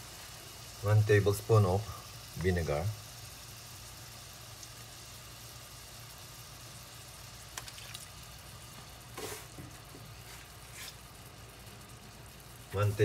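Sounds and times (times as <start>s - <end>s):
food sizzling faintly in oil: 0.0s - 13.0s.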